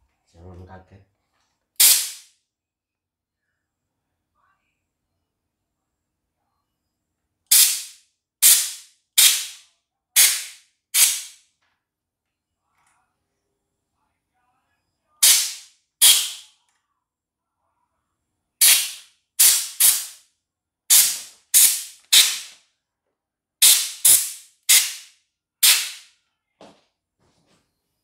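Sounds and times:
compressed air blow gun blasts: 1.8s - 2.3s, 7.5s - 9.6s, 10.2s - 11.4s, 15.2s - 16.4s, 18.6s - 20.2s, 20.9s - 22.6s, 23.6s - 26.0s.

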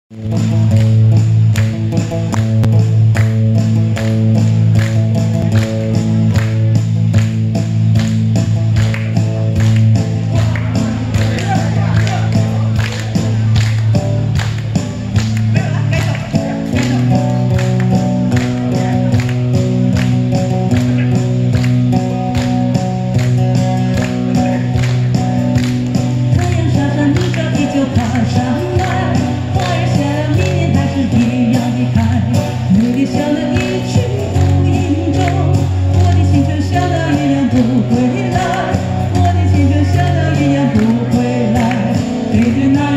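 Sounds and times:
amplified guitar strumming: 0.1s - 42.9s
woman singing into microphone: 26.3s - 42.9s.

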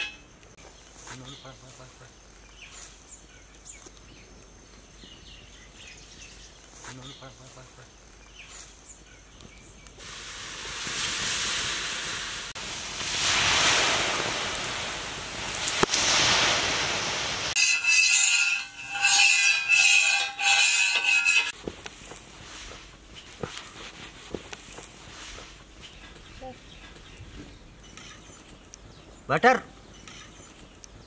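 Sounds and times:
water sizzling on hot griddle: 9.9s - 19.0s.

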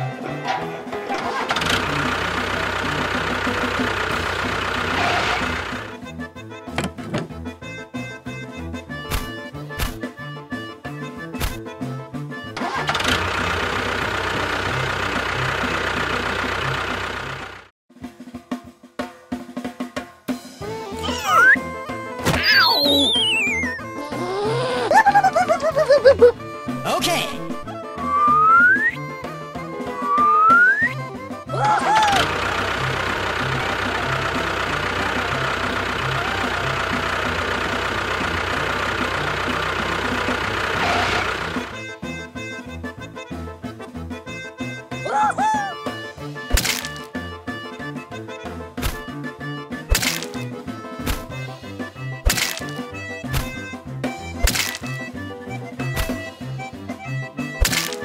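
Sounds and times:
background music: 0.0s - 4.6s, 5.6s - 13.0s, 18.0s - 40.5s, 41.5s - 58.0s
engine idling: 0.0s - 9.1s, 12.4s - 17.7s, 21.0s - 45.1s.

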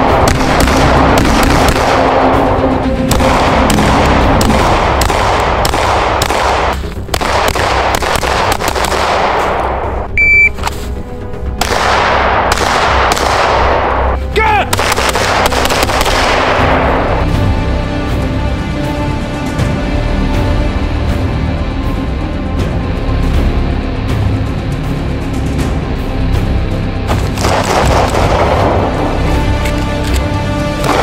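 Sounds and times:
background music: 0.0s - 31.0s
short electronic beep: 10.2s - 10.6s
handgun shots echoing: 11.6s - 16.8s.

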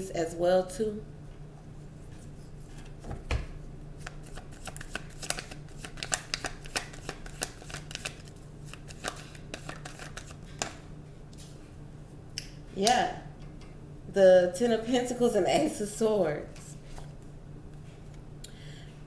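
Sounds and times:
cards being shuffled: 4.0s - 10.8s.

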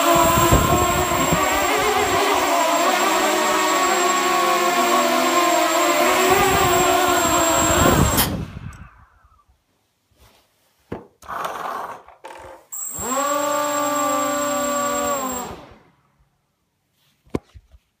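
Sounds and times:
drone motors humming: 0.0s - 8.3s, 12.8s - 15.6s.

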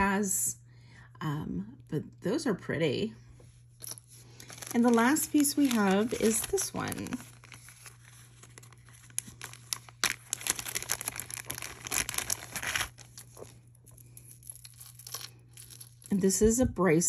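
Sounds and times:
plastic bag crinkling: 3.8s - 16.2s.

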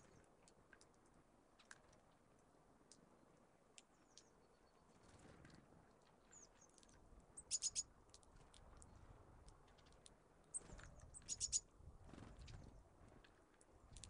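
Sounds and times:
songbird chirps and ticks: 0.0s - 14.0s.

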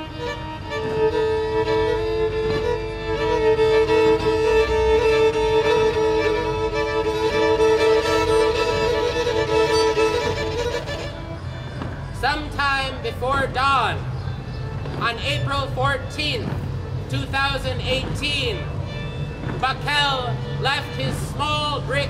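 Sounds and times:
violins holding a chord: 0.0s - 11.6s.

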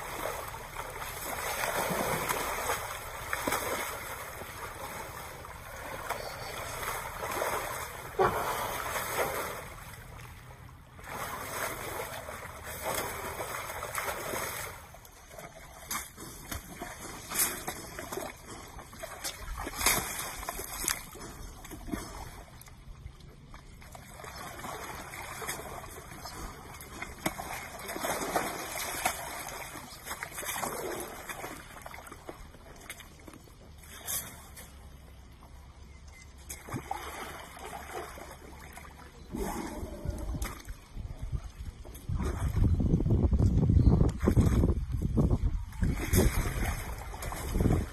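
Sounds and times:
elephant splashing in mud: 0.0s - 10.4s, 11.0s - 22.5s, 23.9s - 33.0s, 45.8s - 47.9s.

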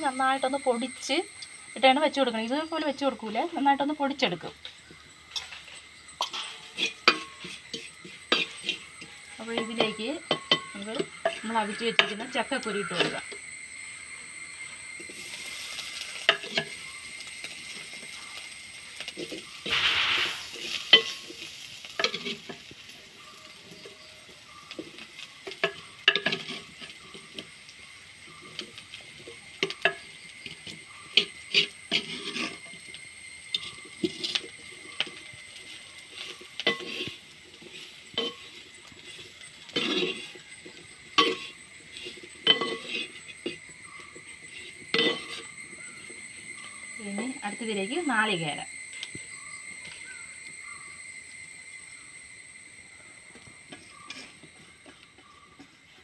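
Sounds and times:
light sizzle in oil: 0.0s - 56.0s
spoon scraping and knocking pan: 4.9s - 13.4s, 15.0s - 18.2s, 19.0s - 27.6s, 28.2s - 46.7s, 53.3s - 56.0s.

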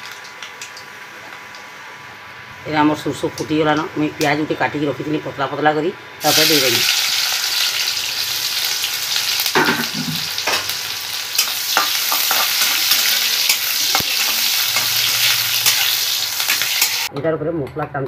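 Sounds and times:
onions sizzling in hot oil: 0.0s - 17.1s
metal spatula clicking and scraping: 11.4s - 17.1s.

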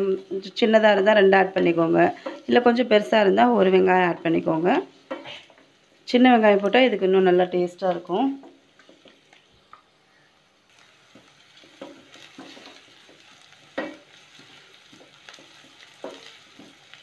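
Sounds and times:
shallots sizzling in oil: 0.0s - 17.0s
wooden spatula scraping pan: 11.2s - 17.0s.

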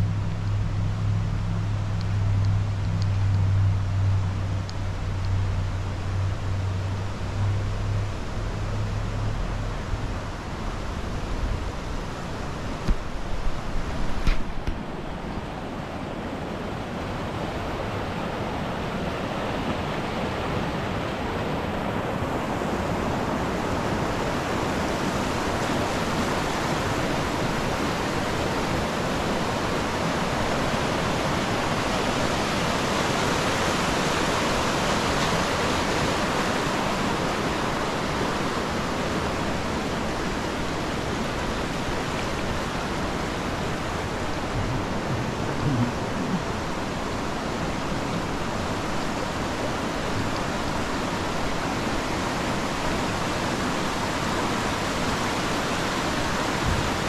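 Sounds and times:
river water rushing: 0.0s - 57.0s.

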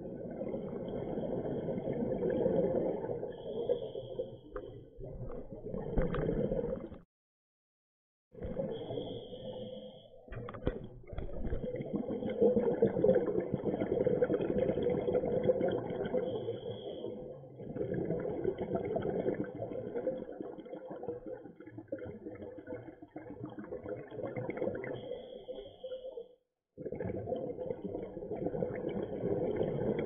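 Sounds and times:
underwater regulator exhaust bubbles: 10.3s - 25.2s.

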